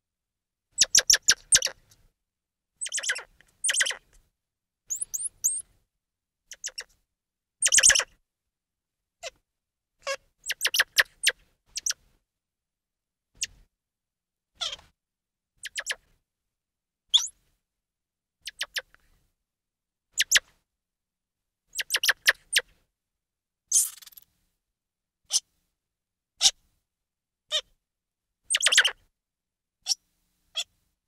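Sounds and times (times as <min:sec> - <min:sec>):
monkey chirps and peeps: 0:00.8 - 0:01.8, 0:02.8 - 0:04.1, 0:04.9 - 0:05.6, 0:06.5 - 0:06.9, 0:07.6 - 0:08.2, 0:10.1 - 0:12.0, 0:14.6 - 0:14.8, 0:15.6 - 0:16.1, 0:17.1 - 0:17.4, 0:18.4 - 0:18.9, 0:20.2 - 0:20.4, 0:21.7 - 0:22.7, 0:23.7 - 0:24.2, 0:28.5 - 0:29.0.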